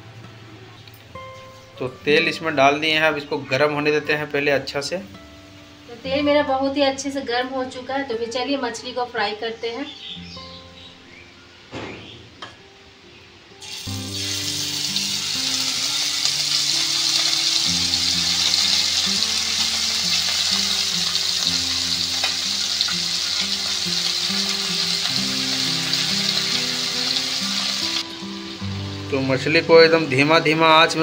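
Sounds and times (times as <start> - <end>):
soft background music: 0.0 - 31.0
fish sizzling in hot oil: 13.6 - 28.6.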